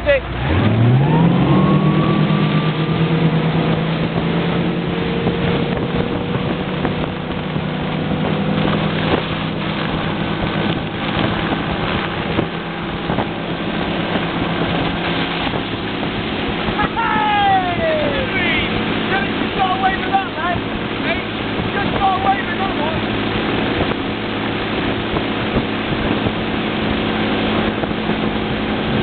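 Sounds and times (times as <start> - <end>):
boat engine accelerating: 0.0 - 29.0
wind and water rushing: 0.0 - 29.0.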